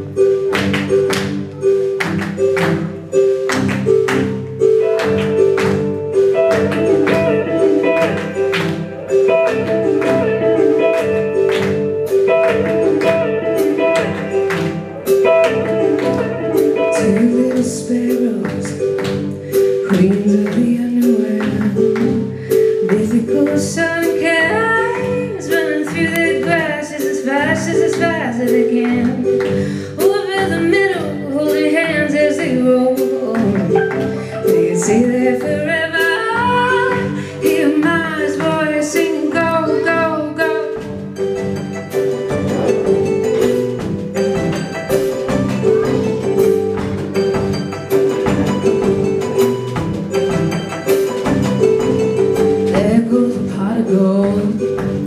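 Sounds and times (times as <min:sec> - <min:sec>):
electric guitar: 0:00.0 - 0:30.1, 0:32.7 - 0:55.0
drums: 0:00.0 - 0:55.0
keyboard chords: 0:00.0 - 0:55.0
woman singing: 0:16.7 - 0:19.1, 0:19.8 - 0:40.9, 0:52.6 - 0:55.0.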